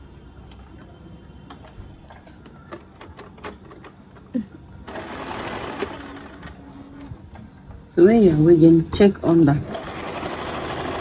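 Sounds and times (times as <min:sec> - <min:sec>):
electric sewing machine stitching: 0:04.9 - 0:06.6, 0:09.7 - 0:11.0.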